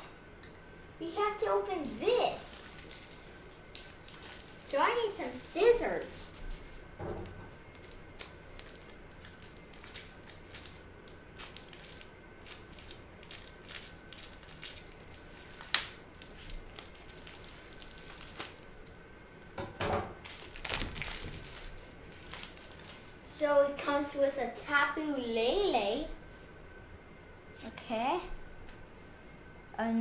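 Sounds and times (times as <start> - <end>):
plastic crinkling: 1.8 - 6.6, 7.2 - 19.0, 20.2 - 23.2
plastic package clicks and rustles: 2.6 - 5.1, 7.2 - 19.0, 20.2 - 23.0.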